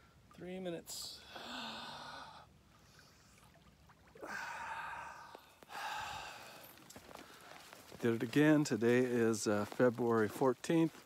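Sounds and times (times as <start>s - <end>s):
man breathing heavily: 1.2s - 2.9s, 4.2s - 7.8s.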